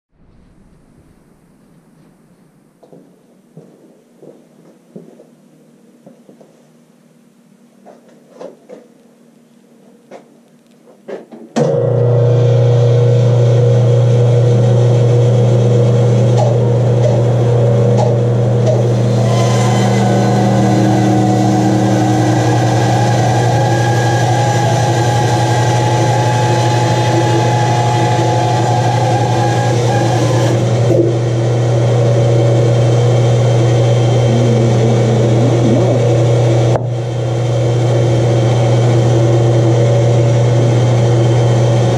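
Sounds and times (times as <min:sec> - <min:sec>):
bandsaw humming: 0:16.5 - 0:41.9
bandsaw blade sawing log: 0:18.7 - 0:30.6.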